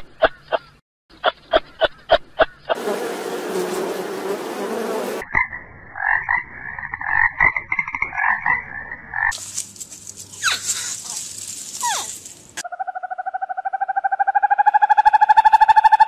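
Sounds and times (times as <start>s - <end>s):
honeybee buzzing: 2.8s - 5.2s.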